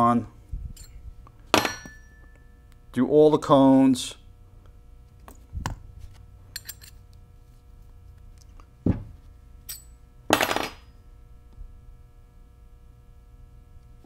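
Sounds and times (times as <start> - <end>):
metal gears clinking: 6.5 - 7.0.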